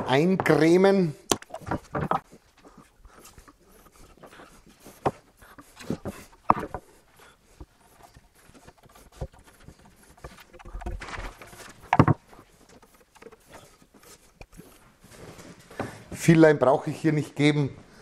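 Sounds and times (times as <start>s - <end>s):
wooden boards knocking on workbench: 11.9s - 12.3s.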